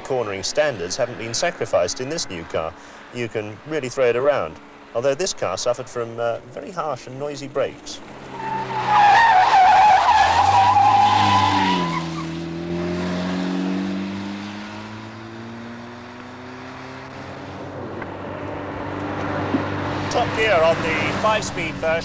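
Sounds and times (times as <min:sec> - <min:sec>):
car tyres squealing: 0:08.0 - 0:14.9
car engine accelerating: 0:08.0 - 0:22.0.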